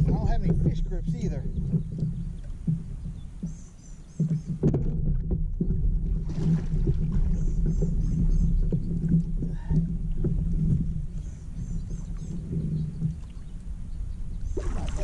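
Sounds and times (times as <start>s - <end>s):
knocks on hull and gear: 0.0s - 7.2s
water slapping against hull: 0.0s - 15.0s.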